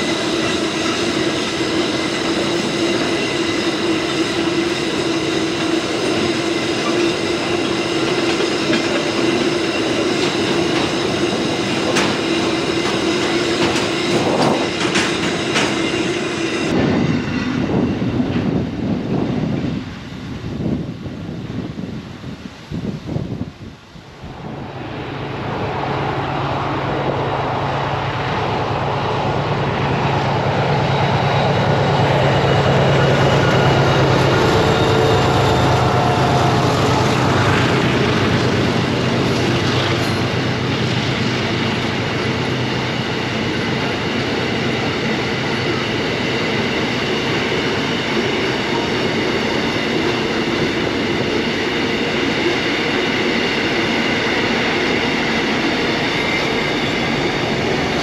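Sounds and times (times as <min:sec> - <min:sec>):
high wheel squeal: 0:00.0 - 0:16.7, 0:32.2 - 0:50.4
diesel locomotive drone: 0:00.0 - 0:58.0
train wheels rumbling on rail: 0:00.0 - 0:58.0.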